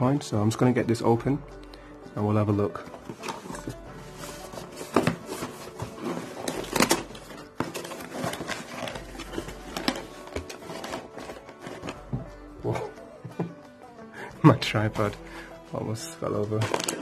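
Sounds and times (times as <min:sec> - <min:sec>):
cardboard box rustling and scraping: 0:02.9 - 0:12.3.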